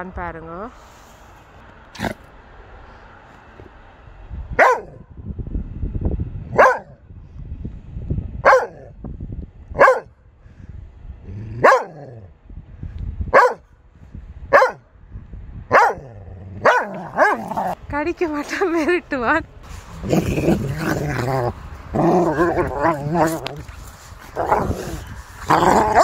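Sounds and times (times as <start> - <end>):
dog barking: 4.6 - 5.0, 6.6 - 7.0, 8.4 - 8.9, 9.8 - 10.1, 11.6 - 12.1, 13.3 - 13.6, 14.5 - 14.8, 15.7 - 17.7.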